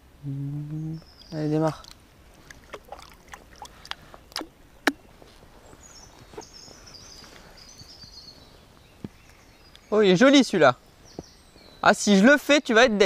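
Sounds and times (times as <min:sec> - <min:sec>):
water dripping into lake: 0:01.1 - 0:05.1.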